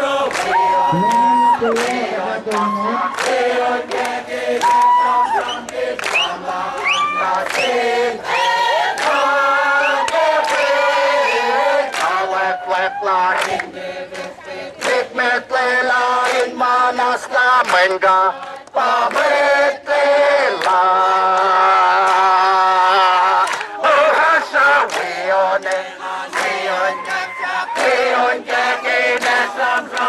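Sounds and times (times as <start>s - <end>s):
crowd singing in chorus: 0.0s - 30.0s
hand claps: 0.2s - 7.8s, 8.9s - 10.7s, 11.9s - 12.2s, 13.3s - 15.1s, 17.6s - 19.4s, 20.5s - 22.2s, 23.4s - 28.2s, 29.2s - 30.0s.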